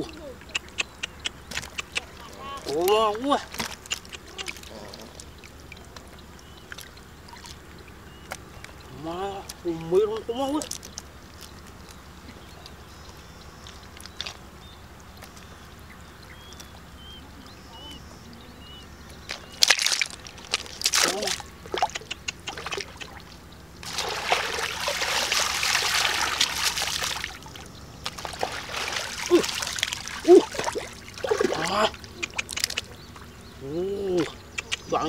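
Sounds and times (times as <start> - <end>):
water splashing and sloshing: 0.7 - 12.8, 19.1 - 33.4.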